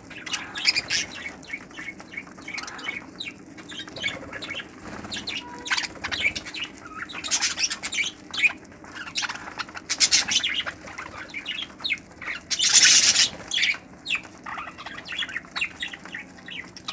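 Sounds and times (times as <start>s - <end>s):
budgerigars chattering: 0.0s - 16.9s
wing flapping: 0.4s - 11.2s.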